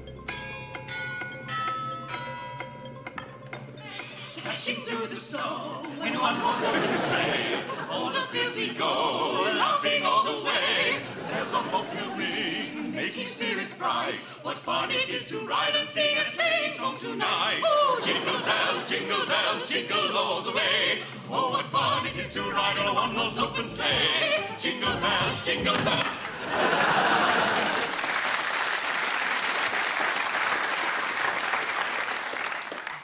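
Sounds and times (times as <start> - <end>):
choir singing operatically: 4.2 - 28.0
audience applause: 26.0 - 33.0.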